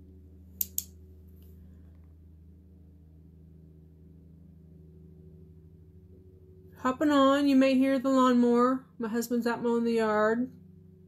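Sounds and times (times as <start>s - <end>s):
sharp clicks: 0.6s - 0.9s.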